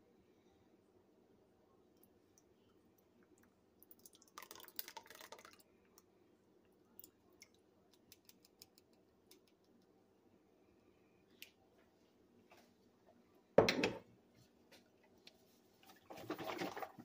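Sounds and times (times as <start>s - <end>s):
thick sauce pouring wet crackles: 3.0s - 6.0s.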